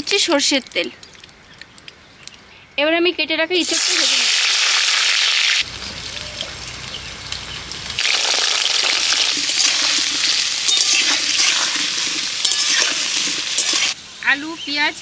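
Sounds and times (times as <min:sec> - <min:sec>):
food sizzling in hot oil: 0:03.6 - 0:15.0.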